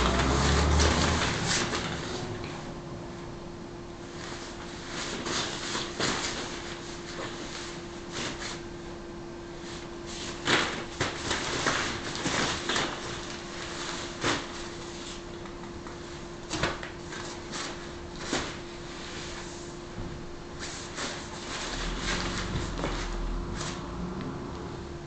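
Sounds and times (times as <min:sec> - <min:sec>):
faint steady hum: 0:01.2 - 0:25.0.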